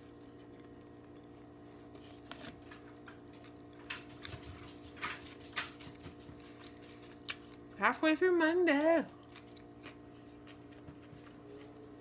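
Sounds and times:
person chewing food: 0:00.0 - 0:04.4, 0:05.5 - 0:07.8, 0:09.1 - 0:11.9.

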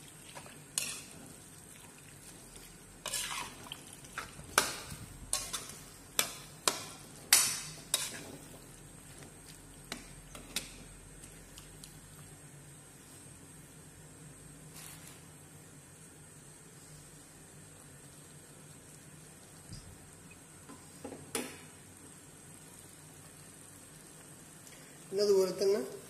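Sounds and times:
faint sizzle: 0:00.0 - 0:26.0
metal spatula scraping wok: 0:00.7 - 0:01.3, 0:03.0 - 0:06.9, 0:07.6 - 0:08.5.

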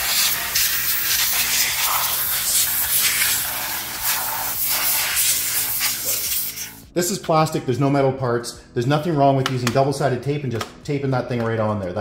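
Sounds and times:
compressed air hissing: 0:00.0 - 0:06.9.

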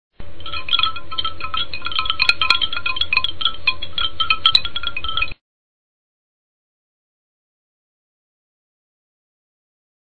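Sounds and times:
faint steady hum: 0:00.2 - 0:05.4
wind chimes tinkling: 0:00.4 - 0:05.4.

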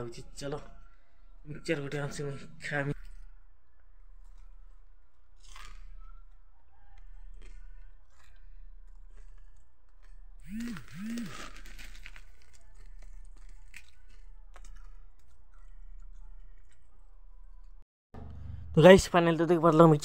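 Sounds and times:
chewing crunchy snack: 0:04.1 - 0:17.8.

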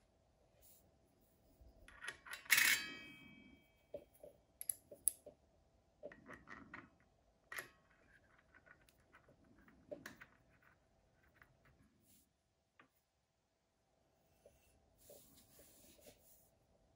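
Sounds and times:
sharp metallic clink: 0:02.5 - 0:03.6.

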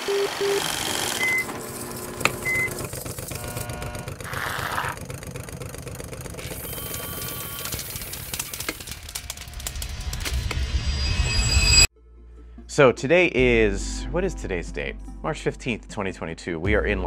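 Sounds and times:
short electronic tones: 0:00.0 - 0:01.5
rapid mechanical clicking clatter: 0:05.0 - 0:10.3.

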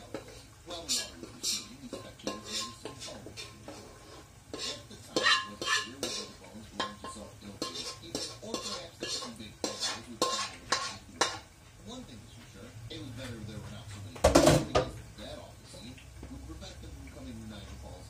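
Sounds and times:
metal spoon clinking against pan: 0:00.1 - 0:03.8, 0:04.5 - 0:11.5.

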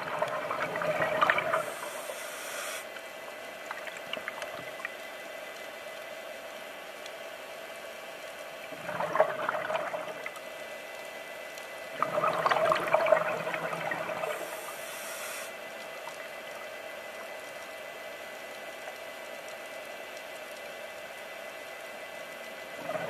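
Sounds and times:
diver's exhaled bubbles: 0:00.0 - 0:02.1, 0:08.8 - 0:10.3, 0:12.0 - 0:14.5, 0:22.8 - 0:23.0
steady hum: 0:00.0 - 0:19.2.

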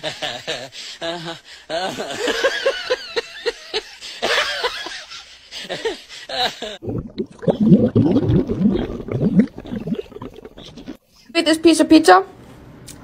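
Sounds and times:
dog gurgling in puddle water: 0:06.8 - 0:11.0.

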